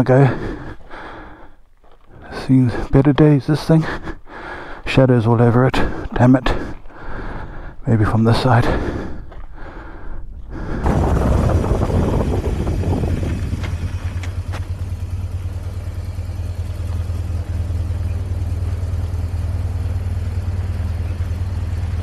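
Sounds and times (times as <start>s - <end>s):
tyres on gravel: 0.0s - 22.0s
wind: 0.0s - 22.0s
motorcycle engine running: 10.8s - 22.0s.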